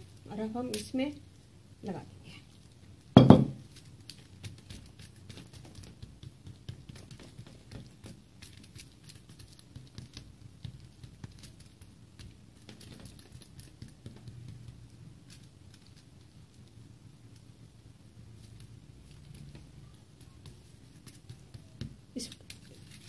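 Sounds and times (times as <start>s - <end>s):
hands patting dough on foil: 0.0s - 23.0s
foil crinkling: 7.1s - 10.2s, 20.9s - 23.0s.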